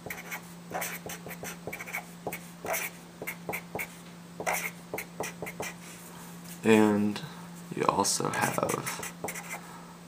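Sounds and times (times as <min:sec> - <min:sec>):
marker scratching on whiteboard: 0:00.0 - 0:05.8, 0:08.4 - 0:09.6.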